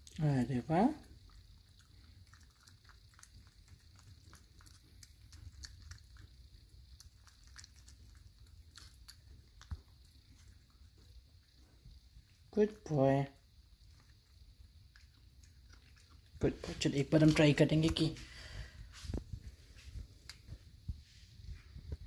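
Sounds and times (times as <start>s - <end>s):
cat tongue clicks licking: 1.2s - 11.1s.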